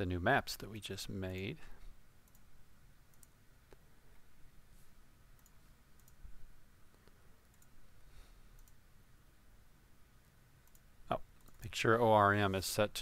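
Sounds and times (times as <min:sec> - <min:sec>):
faint computer mouse clicks: 0:03.1 - 0:03.8, 0:05.4 - 0:06.2, 0:06.9 - 0:07.8, 0:08.6 - 0:08.8, 0:10.6 - 0:11.6.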